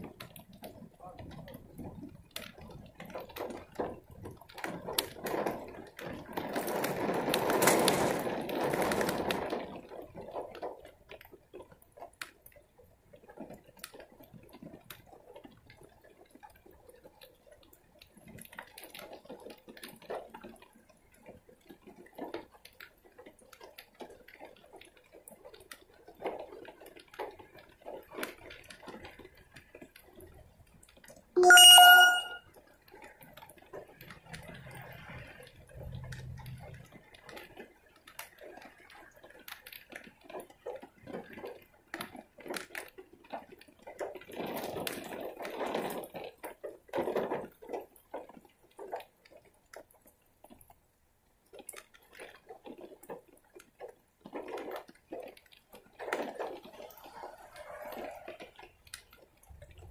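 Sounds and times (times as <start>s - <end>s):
rain dripping and pattering: 0.0s - 31.4s, 32.5s - 59.9s
short ringing tone: 31.4s - 32.4s.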